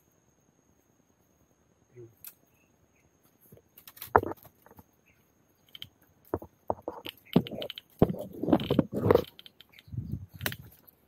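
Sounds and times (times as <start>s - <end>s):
dry twigs and leaves crackling: 3.2s - 11.0s.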